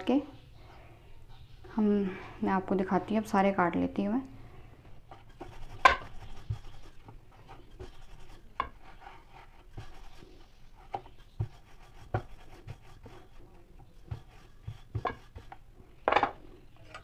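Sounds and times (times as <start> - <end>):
rolling pin rubbing dough: 4.9 - 16.0
rolling pin knocking board: 5.4 - 6.8, 14.0 - 16.3.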